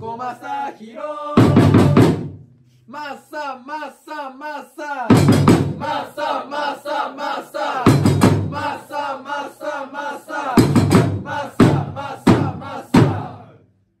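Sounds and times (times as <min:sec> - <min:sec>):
heavy drum beats: 0:01.4 - 0:02.5, 0:05.1 - 0:06.1, 0:07.7 - 0:08.8, 0:10.5 - 0:13.4
football supporters chanting: 0:05.4 - 0:13.6.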